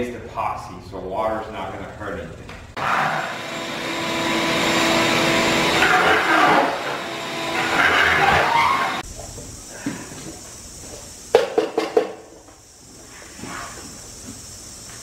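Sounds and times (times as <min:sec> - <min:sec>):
shop vacuum suction: 0:02.8 - 0:09.0.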